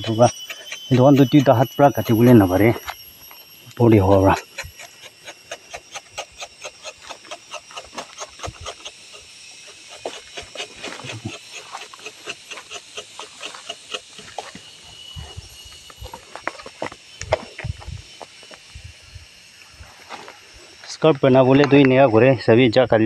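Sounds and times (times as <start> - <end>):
knife scraping tree bark: 0.0 - 3.1, 3.9 - 17.6.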